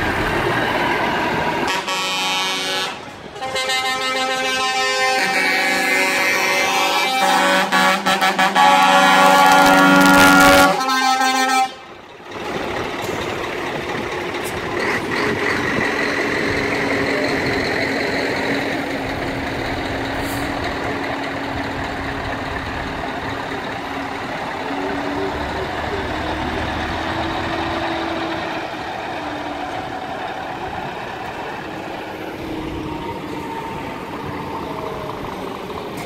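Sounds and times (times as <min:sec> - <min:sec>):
diesel truck engines running: 0:00.0 - 0:36.0
truck air horns: 0:01.6 - 0:12.0, 0:20.0 - 0:21.0.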